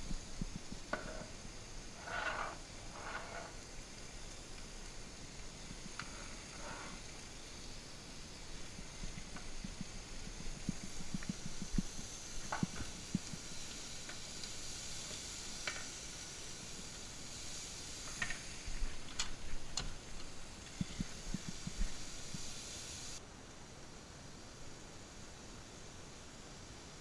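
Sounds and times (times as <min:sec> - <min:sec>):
vegetables sizzling in a frying pan: 0:00.0 - 0:23.2
spatula scraping a pan: 0:01.9 - 0:03.6, 0:06.0 - 0:07.2.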